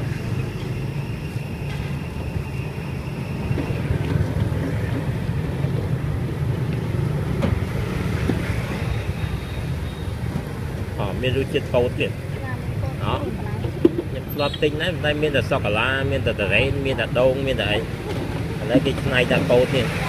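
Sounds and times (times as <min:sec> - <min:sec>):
wind rumble on microphone: 0:00.0 - 0:14.3
street traffic: 0:00.0 - 0:20.0.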